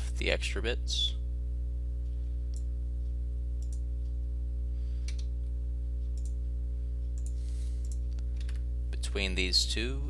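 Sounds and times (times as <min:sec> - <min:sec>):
electrical hum: 0:00.0 - 0:10.0
computer mouse clicking: 0:07.2 - 0:08.6.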